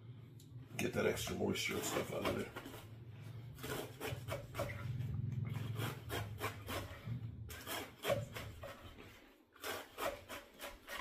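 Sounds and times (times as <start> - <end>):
low steady hum: 0.0 - 9.0
knife slicing lettuce on board: 5.6 - 8.9, 9.6 - 11.0.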